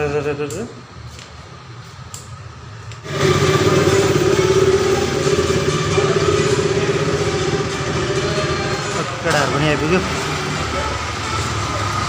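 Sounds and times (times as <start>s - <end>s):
motorcycle engine idling: 3.0s - 12.0s.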